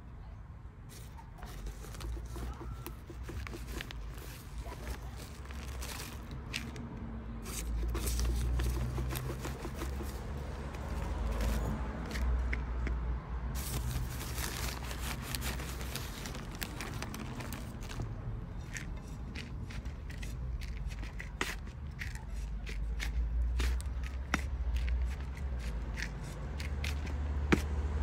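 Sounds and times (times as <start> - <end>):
trowel scraping potting mix: 0.9 - 6.8, 7.4 - 12.9, 13.6 - 27.7
soil shifting: 0.9 - 28.0
plastic bags crinkling: 1.4 - 6.8, 7.4 - 12.3, 13.6 - 21.3.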